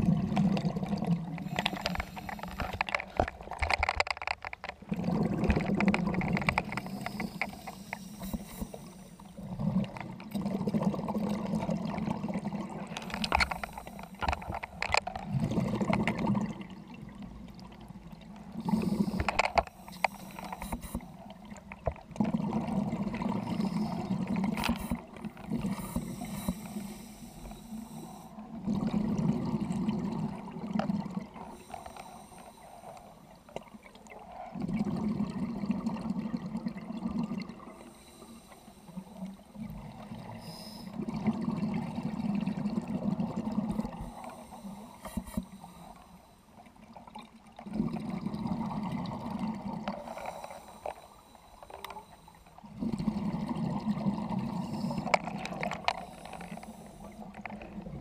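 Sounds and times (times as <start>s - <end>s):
regulator bubbles gurgling: 0.0s - 58.0s
diver inhaling through regulator: 1.4s - 2.9s, 6.6s - 9.5s, 18.6s - 21.2s, 23.2s - 28.4s, 31.5s - 33.5s, 37.7s - 39.3s, 40.2s - 41.1s, 43.6s - 46.5s, 50.0s - 57.5s.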